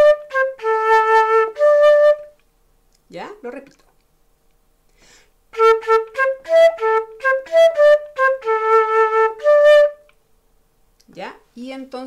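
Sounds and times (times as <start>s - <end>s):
flute melody: 0.0s - 2.4s, 5.5s - 10.1s.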